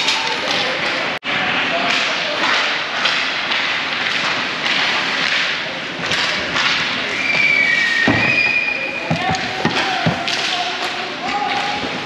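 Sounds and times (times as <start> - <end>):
steady crowd din: 0.0 - 12.0
whistle blowing: 7.1 - 9.1.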